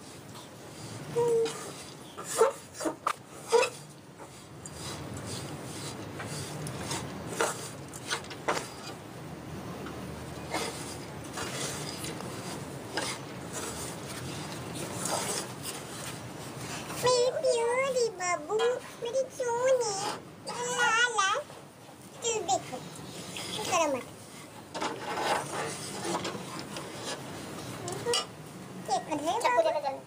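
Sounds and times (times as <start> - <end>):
metal spatula scraping a pan: 0.7 - 9.0, 10.4 - 17.2, 24.8 - 28.3.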